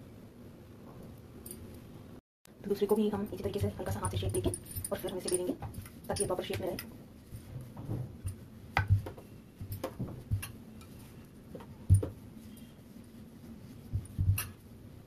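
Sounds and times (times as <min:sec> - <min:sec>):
rolling pin rolling dough: 0:02.9 - 0:15.0.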